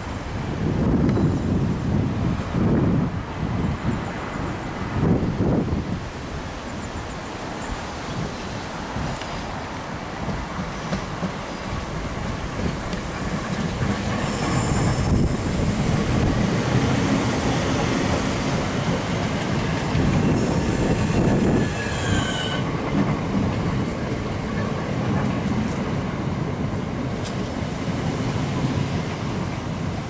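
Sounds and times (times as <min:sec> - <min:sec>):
train wheels rumbling on rail: 0:00.0 - 0:30.0
train wheels squealing: 0:01.2 - 0:01.6, 0:14.1 - 0:15.6, 0:20.2 - 0:22.7
rail clicks: 0:06.8 - 0:30.0.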